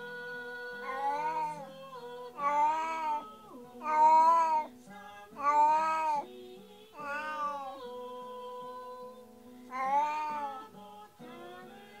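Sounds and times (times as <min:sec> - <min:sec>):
cat meowing: 0:00.8 - 0:01.7, 0:02.4 - 0:04.7, 0:05.4 - 0:06.3, 0:07.0 - 0:07.8, 0:09.7 - 0:10.7.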